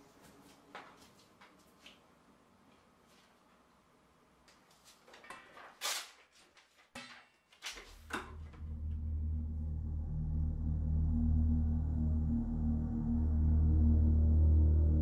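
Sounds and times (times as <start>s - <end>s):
low droning music: 8.2s - 15.0s.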